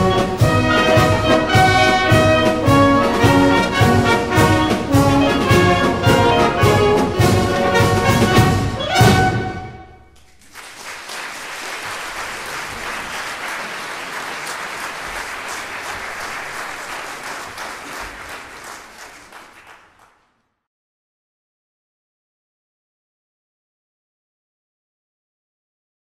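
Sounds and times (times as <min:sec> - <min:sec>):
audience applauding: 0:10.2 - 0:20.4.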